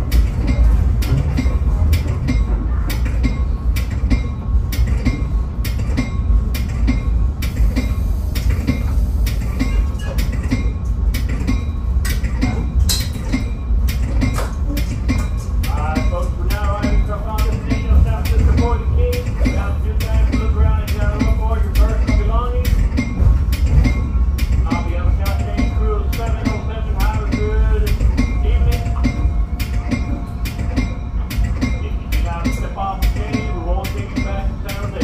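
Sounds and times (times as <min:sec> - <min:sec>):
train rumbling: 0:00.0 - 0:35.0
wheels clacking on track: 0:00.0 - 0:35.0.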